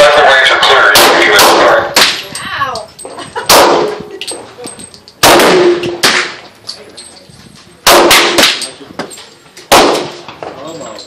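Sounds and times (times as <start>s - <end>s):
handgun shots echoing: 0.9s - 2.2s, 5.2s - 6.4s, 7.8s - 8.8s, 9.7s - 10.2s.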